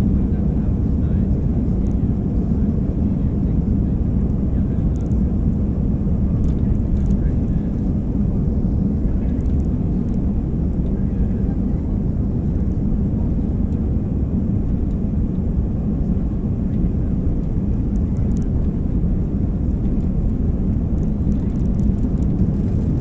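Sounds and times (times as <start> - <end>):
jet engines rumbling: 0.0 - 23.0
wheels running on runway: 19.6 - 23.0.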